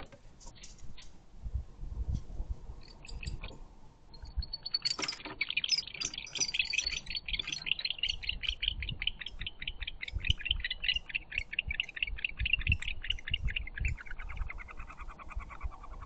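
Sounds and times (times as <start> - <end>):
barn owl chittering calls: 4.2 - 16.0.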